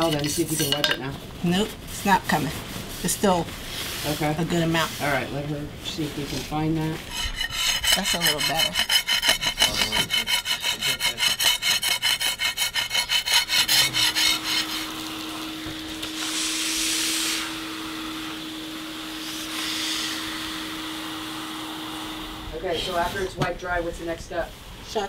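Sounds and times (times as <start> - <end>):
metal scraper on concrete: 0.0 - 1.0, 7.0 - 16.5
wet-dry vacuum humming: 13.6 - 23.4
vacuum nozzle sucking liquid: 14.4 - 23.0.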